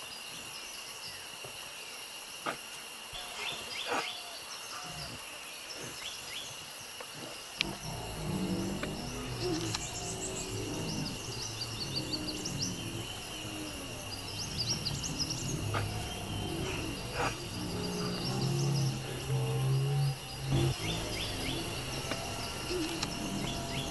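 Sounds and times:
high insect drone: 0.0s - 23.9s
low sustained background music: 7.6s - 23.9s.

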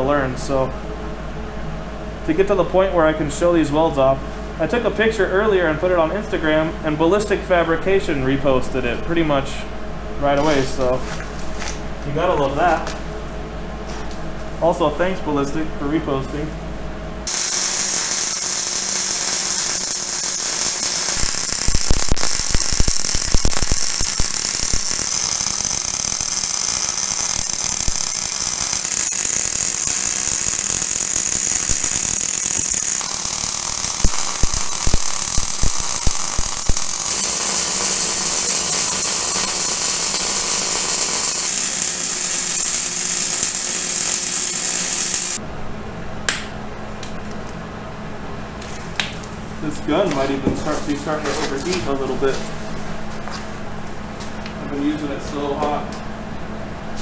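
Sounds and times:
welding arc crackling and popping: 17.3s - 45.4s.

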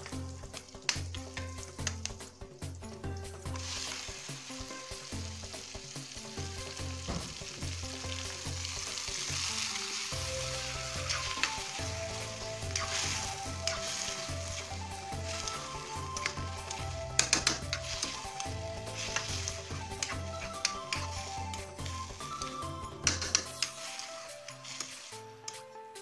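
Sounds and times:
food sizzling in hot oil: 0.0s - 25.6s
metal spatula scraping wok: 9.4s - 25.2s.

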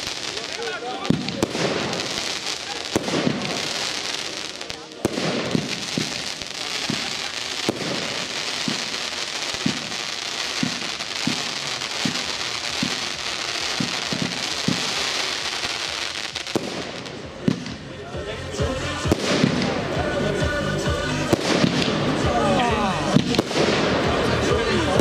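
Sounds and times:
crackling hiss of fireworks: 0.0s - 25.0s
firework launch thumps: 5.0s - 9.0s, 10.6s - 13.2s, 13.8s - 15.0s.

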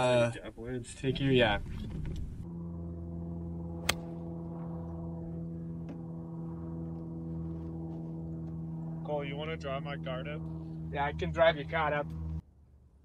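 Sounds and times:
steady low hum: 0.0s - 13.0s
golf club striking ball: 3.8s - 4.2s.

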